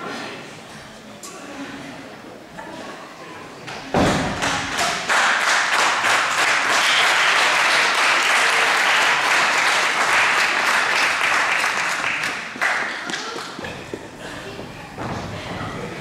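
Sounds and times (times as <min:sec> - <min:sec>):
heavy thud: 0:03.9 - 0:04.6
crowd applauding: 0:04.4 - 0:13.6.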